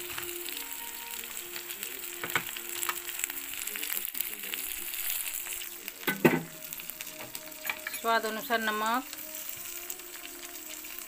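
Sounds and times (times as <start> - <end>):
vegetables sizzling in oil: 0.0 - 11.0
steel ladle scraping pot: 6.1 - 8.1.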